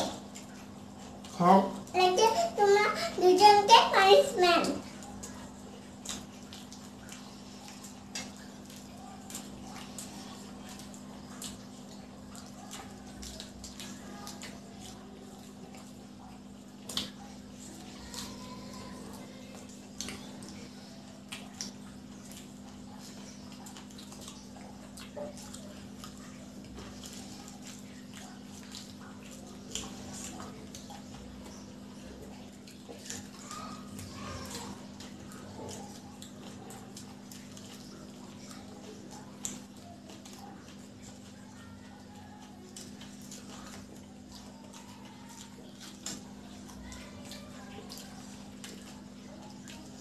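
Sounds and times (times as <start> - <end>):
close chewing mouth smacks: 0.0 - 3.2, 4.3 - 50.0
wet clicks and crunches: 3.6 - 50.0.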